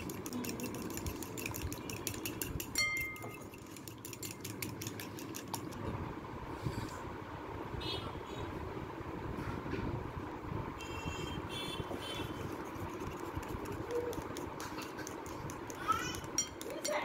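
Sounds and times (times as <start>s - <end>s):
fork clinking against bowl: 0.0s - 5.6s, 16.3s - 17.0s.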